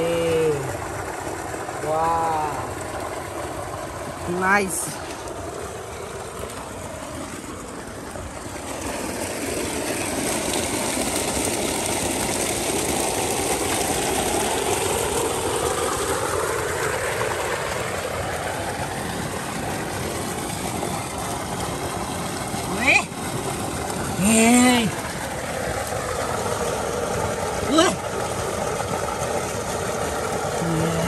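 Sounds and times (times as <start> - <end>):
engine running with low pulsing: 0.0 - 31.0.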